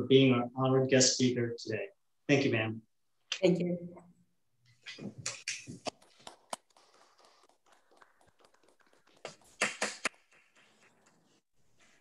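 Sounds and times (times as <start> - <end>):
hand clapping: 5.2 - 11.4.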